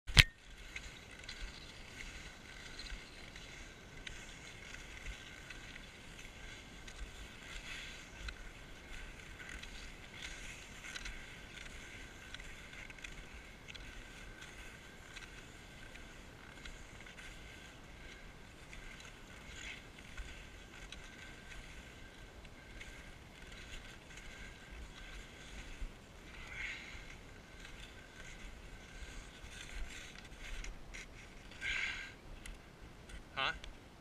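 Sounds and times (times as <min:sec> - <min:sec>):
ski poles crunching into snow: 0:00.1 - 0:33.5
skis swishing over crusty snow: 0:00.4 - 0:33.1.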